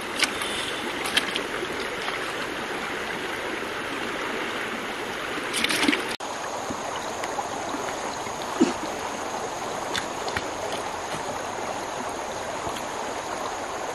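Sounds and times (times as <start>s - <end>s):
splashing in a bucket: 0.0s - 2.5s, 5.5s - 6.2s
river water rushing over stones: 0.0s - 13.9s.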